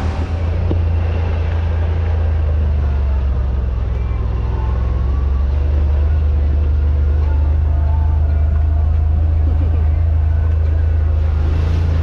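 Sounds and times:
side-by-side engine running: 0.0s - 12.0s.

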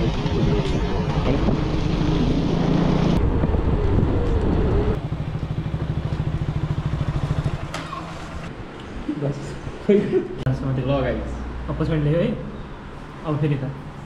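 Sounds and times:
wind noise: 0.0s - 5.0s
motorcycle engine: 0.0s - 8.5s.

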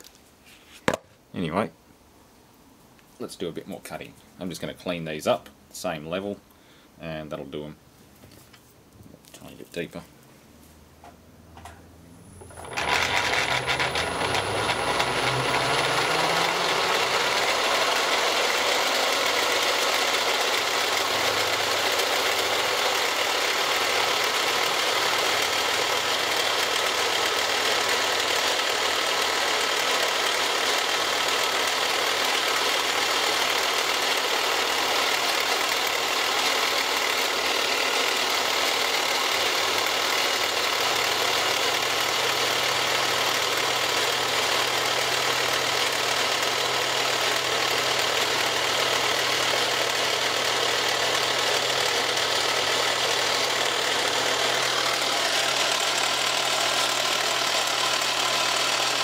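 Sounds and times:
end mill cutting plastic: 12.4s - 59.0s.

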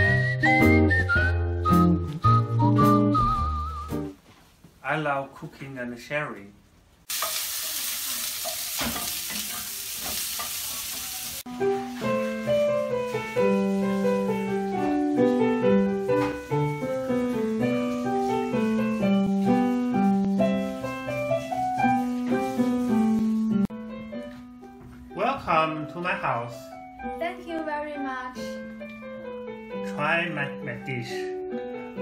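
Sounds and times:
light keyboard melody: 0.0s - 4.2s, 11.5s - 32.0s
food sizzling in a wok: 7.0s - 23.7s.

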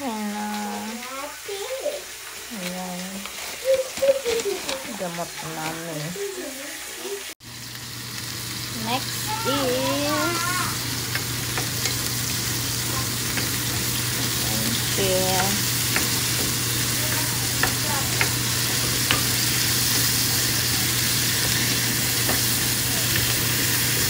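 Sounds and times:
food sizzling in frying pan: 0.0s - 24.0s
wooden spoon clicking on pan: 10.9s - 24.0s.

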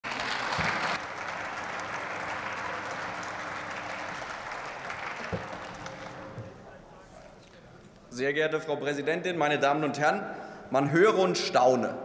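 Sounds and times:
people applauding: 0.0s - 6.7s.

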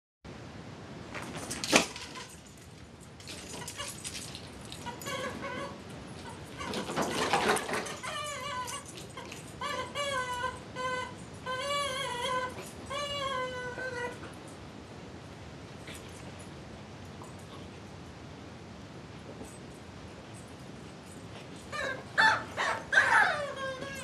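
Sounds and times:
squeaky dog toy squawks: 4.8s - 14.2s, 21.8s - 24.0s.

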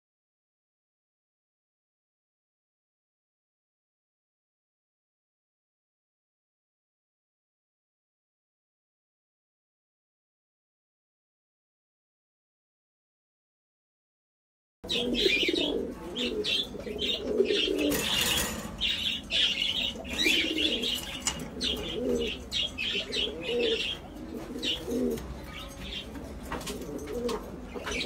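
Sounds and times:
cage birds chirping: 14.8s - 28.0s
pigeons cooing: 14.8s - 28.0s.

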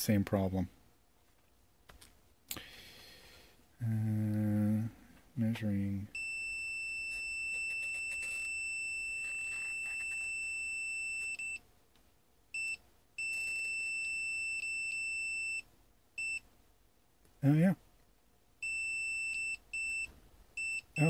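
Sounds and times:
multimeter continuity beeping: 6.1s - 11.6s.

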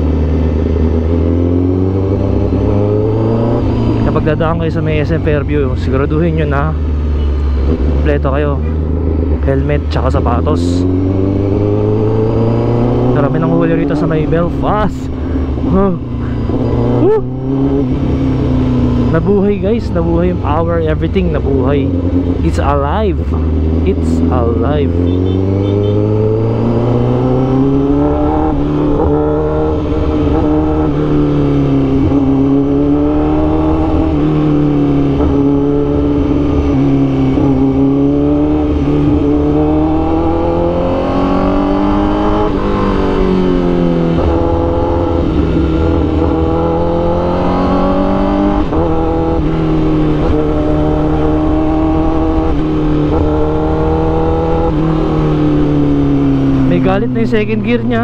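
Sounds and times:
motorcycle engine revving hard: 0.0s - 4.6s, 10.1s - 58.0s
rider talking: 3.9s - 7.0s, 7.6s - 11.0s, 12.0s - 18.1s, 19.0s - 26.1s, 56.5s - 58.0s.

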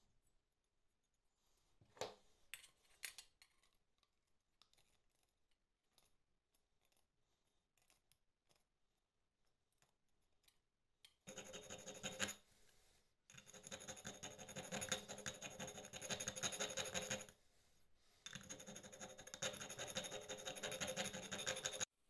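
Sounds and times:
file scraping metal: 11.3s - 12.4s, 13.3s - 17.3s, 18.3s - 21.9s.

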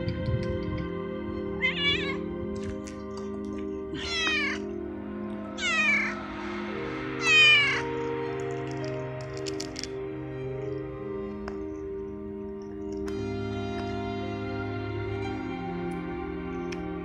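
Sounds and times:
cat meowing: 1.6s - 2.2s, 3.9s - 4.7s, 5.6s - 6.2s, 7.2s - 7.9s.

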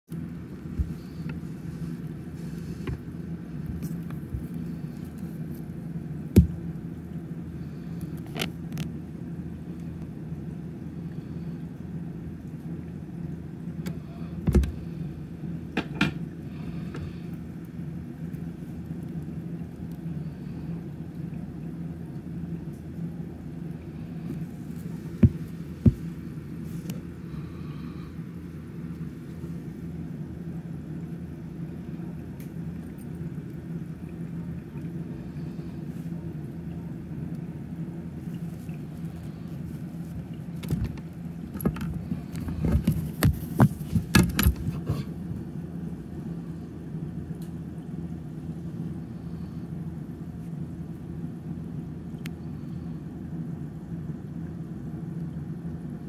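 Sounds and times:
steady low hum: 0.1s - 56.0s.

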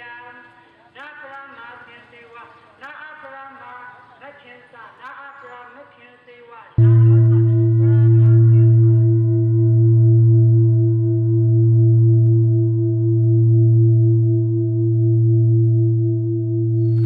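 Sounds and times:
person singing: 6.4s - 9.2s
singing bowl-like low drone: 6.8s - 17.0s.

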